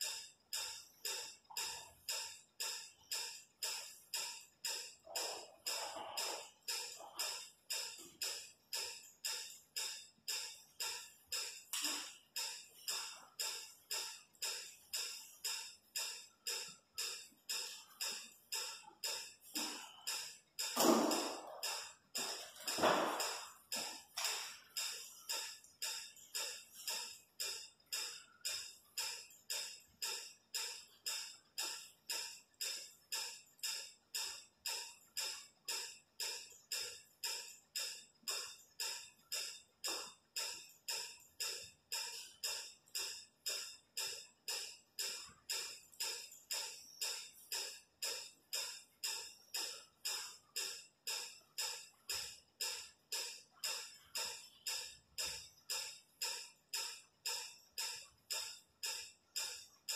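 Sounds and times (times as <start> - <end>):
crisp hissy percussion beat: 11.6 - 28.2.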